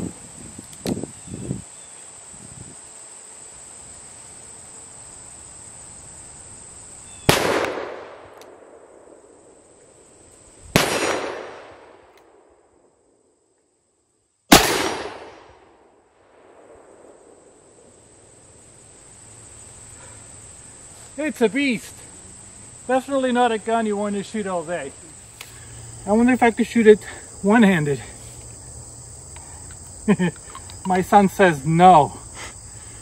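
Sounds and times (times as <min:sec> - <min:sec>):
revolver shots echoing: 0:07.2 - 0:08.6, 0:10.8 - 0:12.0, 0:14.5 - 0:15.5.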